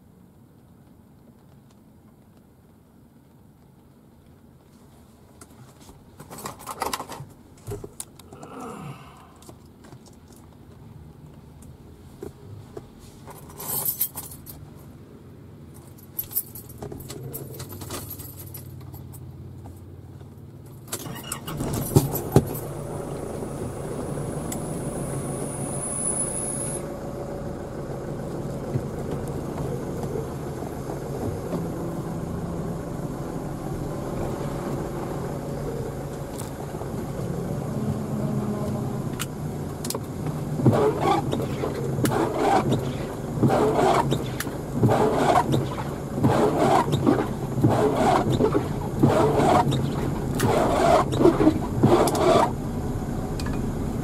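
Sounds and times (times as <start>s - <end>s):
car engine and road noise: 0.0s - 54.0s
jangling handling noise: 13.3s - 14.9s, 15.7s - 19.3s.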